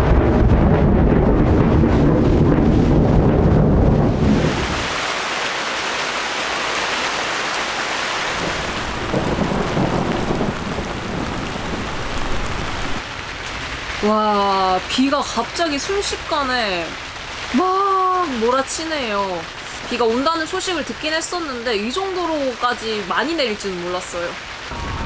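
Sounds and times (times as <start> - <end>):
thunder rumbling: 0.0 - 5.6, 8.2 - 13.0, 24.5 - 25.0
heavy rain hissing: 0.0 - 25.0.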